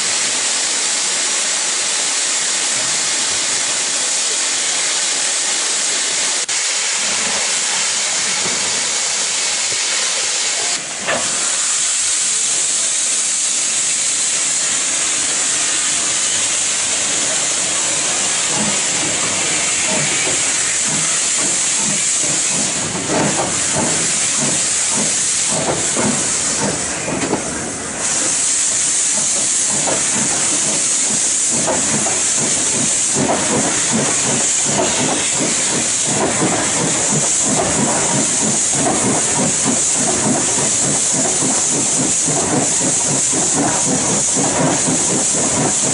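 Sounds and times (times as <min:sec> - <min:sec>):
steam locomotive hissing: 0:00.0 - 0:45.9
steam exhaust chuffs: 0:06.0 - 0:45.9.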